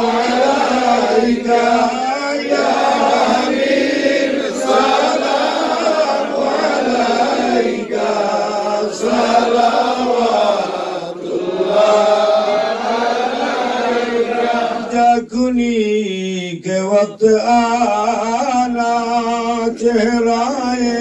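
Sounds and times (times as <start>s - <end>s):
men chanting together unaccompanied: 0.0s - 15.8s.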